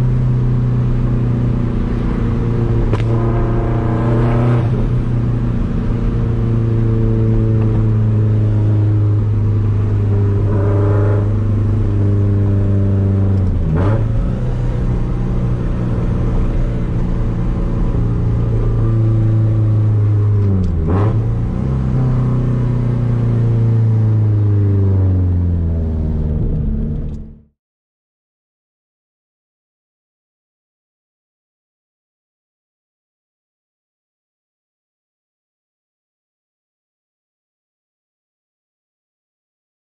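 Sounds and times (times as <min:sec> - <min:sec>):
car engine cruising: 0:00.0 - 0:27.5.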